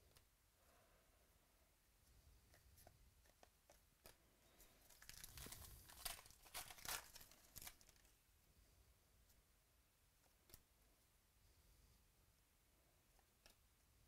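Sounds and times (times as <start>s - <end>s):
foil wrapper tearing: 4.8s - 8.1s.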